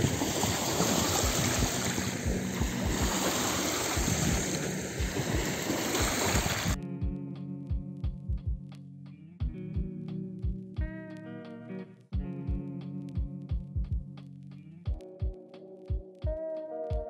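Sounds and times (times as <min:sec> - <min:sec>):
small waves lapping on shore: 0:00.0 - 0:06.8
wind on microphone: 0:00.0 - 0:06.8
plucked guitar music: 0:00.0 - 0:17.0.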